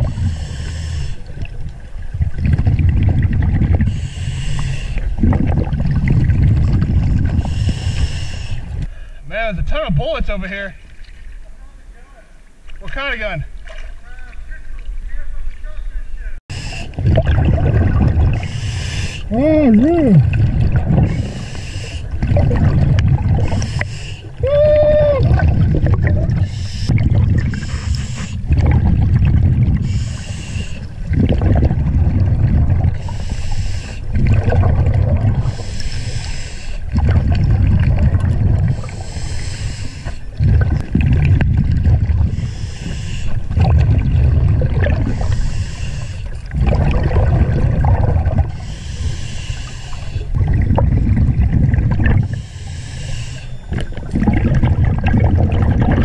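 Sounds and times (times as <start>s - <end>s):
exhaled bubbles rumbling: 0.0s - 9.0s, 16.5s - 56.0s
regulator inhalation hiss: 0.1s - 1.2s, 7.5s - 8.6s, 21.2s - 22.0s, 23.6s - 24.3s, 29.9s - 30.9s, 33.0s - 34.0s, 35.5s - 36.8s, 38.8s - 40.2s, 42.4s - 43.4s, 45.2s - 46.3s, 48.6s - 50.2s, 52.3s - 53.5s
grunt through regulator: 19.3s - 20.4s.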